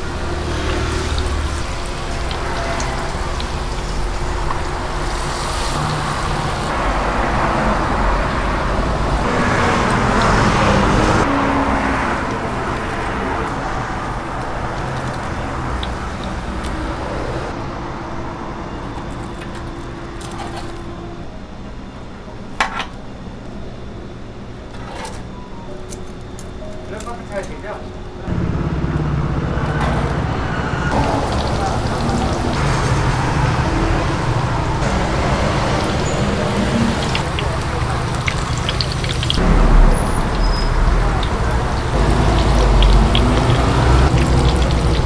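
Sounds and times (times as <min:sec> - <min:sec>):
oil sizzling while deep-frying: 0:00.0 - 0:17.5, 0:30.9 - 0:45.0.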